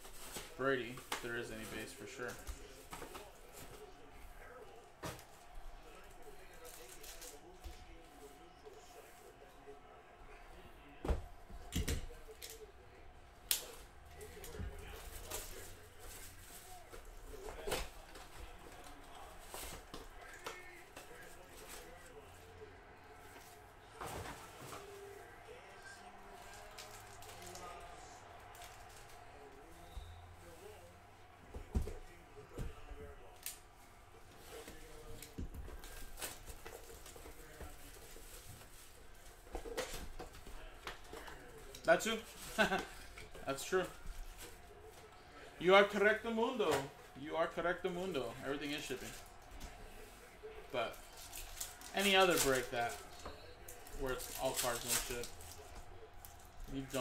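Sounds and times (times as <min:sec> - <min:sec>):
paper and foil rustling: 0:05.0 - 0:08.0, 0:13.5 - 0:22.5, 0:34.4 - 0:40.4, 0:41.1 - 0:45.0, 0:47.6 - 0:57.0
rustling of cardboard box and packs: 0:50.9 - 0:57.0.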